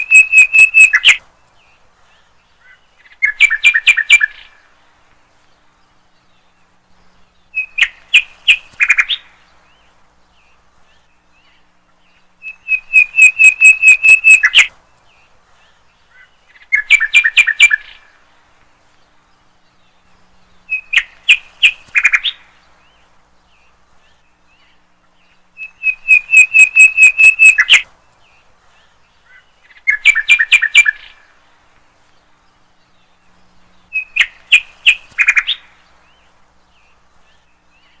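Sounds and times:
bird calling high notes: 0.0 - 1.2, 12.4 - 14.7, 25.6 - 27.8.

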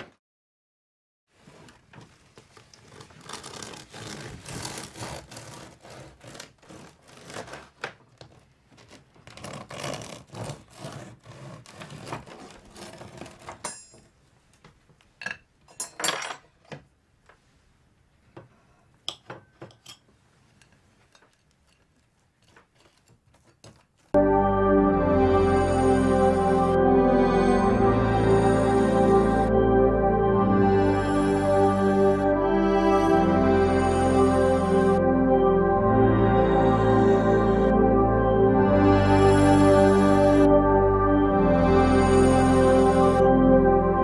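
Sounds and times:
rubbing and scraping: 1.3 - 13.8, 20.4 - 24.2
music: 24.2 - 44.0.

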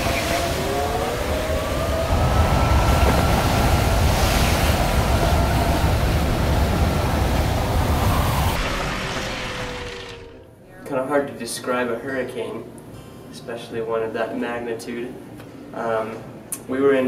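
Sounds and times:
hurricane wind and rain: 0.0 - 10.5
long wind whine: 0.0 - 10.7.

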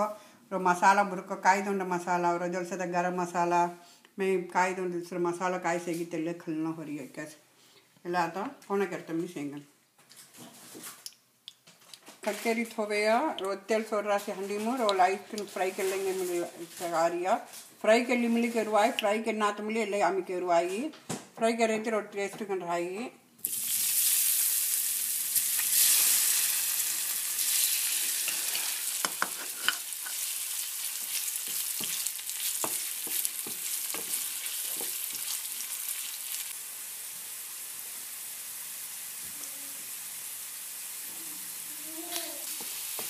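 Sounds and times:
food sizzling in hot oil: 23.4 - 43.0.

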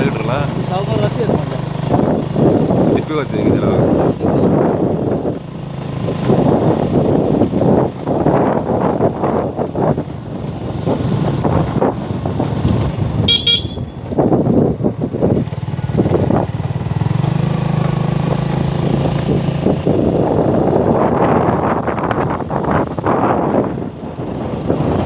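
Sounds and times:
vehicle engine humming: 0.0 - 25.0
wind rushing over microphone: 0.0 - 25.0
short double horn toot: 13.3 - 14.0.

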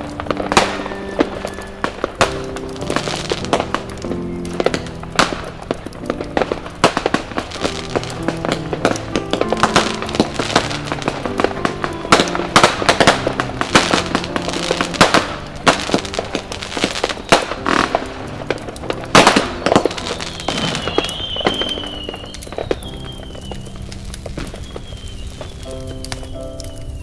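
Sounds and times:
background music: 0.0 - 27.0
fireworks and firecrackers banging: 0.0 - 27.0.

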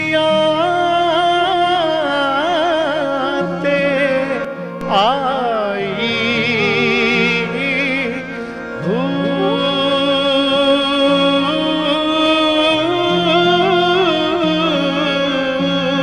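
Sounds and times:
bowed sarangi: 0.0 - 16.0
harmonium: 0.0 - 16.0
man singing: 0.0 - 16.0.

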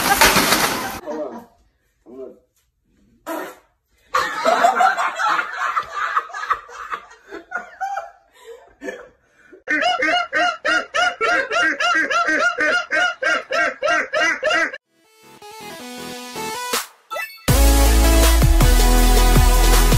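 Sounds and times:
people laughing: 4.2 - 8.8, 9.7 - 14.8
man laughing high-pitched: 9.7 - 14.8.

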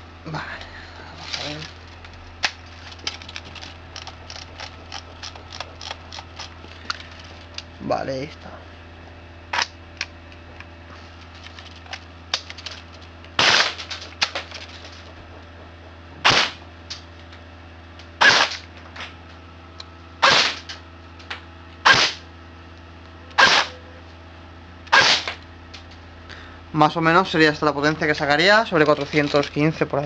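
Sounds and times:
airsoft gun firing single shots: 13.4 - 13.8, 16.2 - 16.6, 18.2 - 18.6, 20.2 - 20.6, 21.8 - 22.2, 23.4 - 23.7, 24.9 - 25.4.

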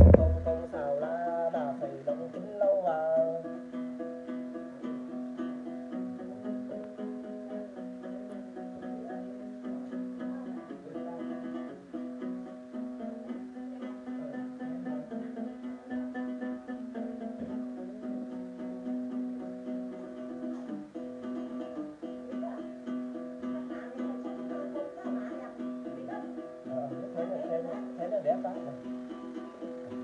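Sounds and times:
man singing: 0.0 - 3.6, 5.8 - 11.8, 12.8 - 18.8
plucked lute: 0.0 - 30.0.

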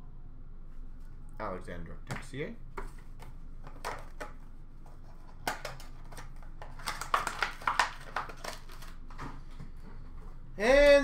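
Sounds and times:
hands rustling card packaging: 2.9 - 10.4
card packaging clicks: 5.4 - 9.2.

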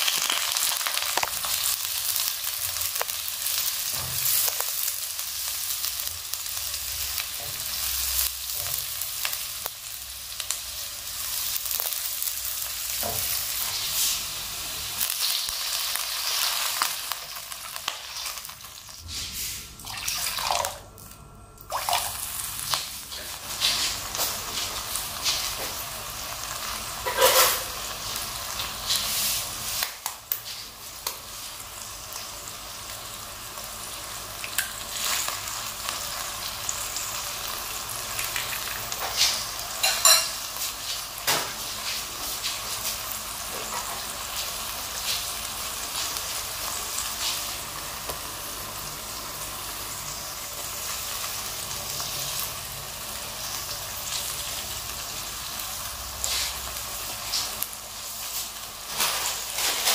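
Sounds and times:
food sizzling in a pan: 0.0 - 20.9, 21.6 - 59.9
utensil scraping pan: 27.0 - 27.8.

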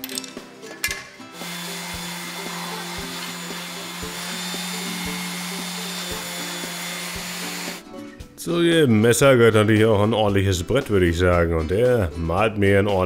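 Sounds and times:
orbital sander sanding wood: 1.4 - 7.8.

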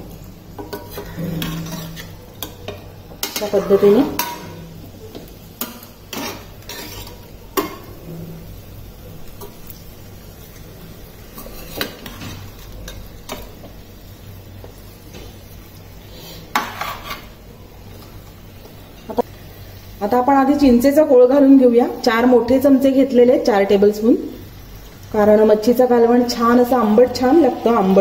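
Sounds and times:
low sizzle from pan: 0.0 - 28.0
metal spoon scraping pan: 0.6 - 4.6, 5.6 - 8.4, 11.4 - 13.0, 16.5 - 17.3.

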